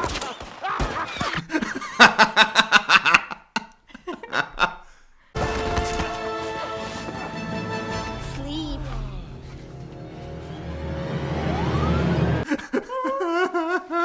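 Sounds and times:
man and woman laughing: 0.6s - 5.0s, 12.4s - 14.0s
film soundtrack: 5.4s - 12.7s.

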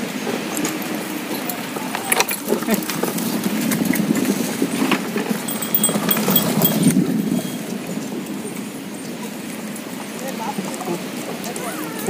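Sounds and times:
cart wheels rumbling on dirt: 0.0s - 12.0s
small bell ringing: 5.4s - 7.4s.

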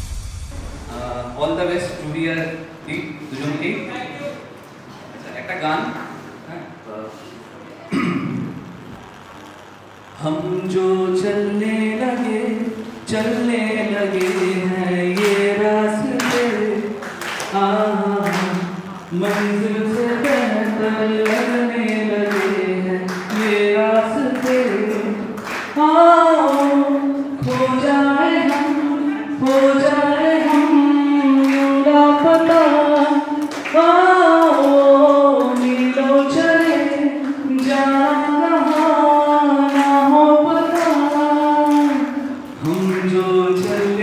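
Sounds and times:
light regular beats: 0.0s - 2.9s
song with singing voice: 0.0s - 3.0s, 10.2s - 44.0s.

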